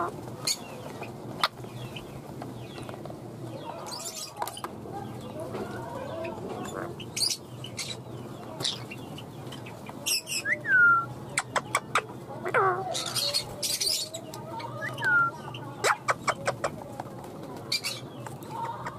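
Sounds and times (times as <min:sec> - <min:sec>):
parrots warbling chatter: 0:03.6 - 0:04.7, 0:05.7 - 0:10.6, 0:11.3 - 0:16.8, 0:17.7 - 0:18.9.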